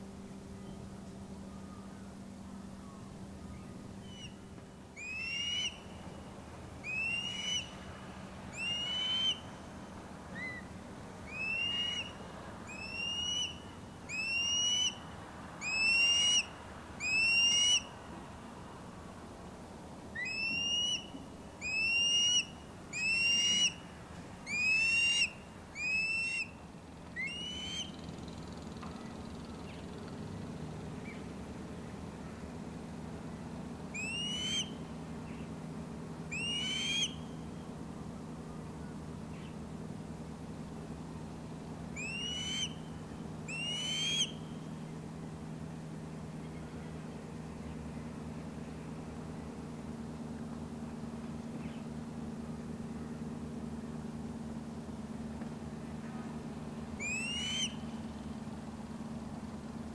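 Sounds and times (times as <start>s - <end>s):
bird whistled calls: 2.8s - 4.4s, 5.0s - 6.1s, 6.8s - 7.8s, 8.5s - 9.5s, 10.3s - 15.0s, 15.6s - 17.9s, 20.2s - 23.8s, 24.4s - 26.6s, 27.2s - 28.1s, 33.9s - 35.5s, 36.3s - 37.4s, 42.0s - 44.6s, 57.0s - 58.1s.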